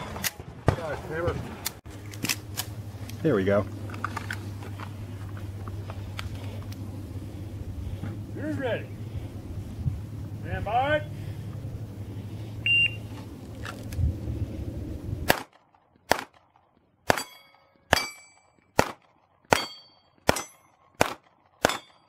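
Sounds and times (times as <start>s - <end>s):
short high timer beep: 12.7s - 13.0s
pistol shots: 15.3s - 22.0s
steel target plates ringing: 17.1s - 18.6s, 19.5s - 20.8s, 21.6s - 22.0s.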